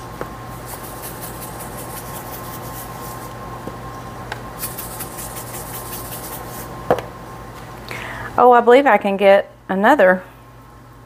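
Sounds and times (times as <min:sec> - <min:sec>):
steady low hum: 0:00.0 - 0:11.0
salt grains rattling from shaker: 0:00.6 - 0:03.3, 0:04.6 - 0:06.7.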